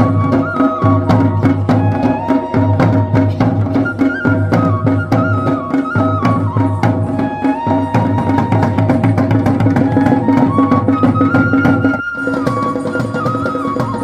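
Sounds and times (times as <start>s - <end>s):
drum strokes: 0.0s - 14.0s.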